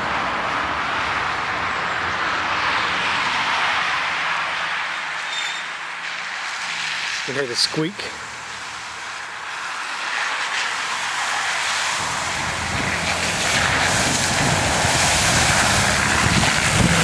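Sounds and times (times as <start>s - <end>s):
tyres splashing through puddles: 0.0s - 17.0s
vehicle engine running: 12.0s - 17.0s.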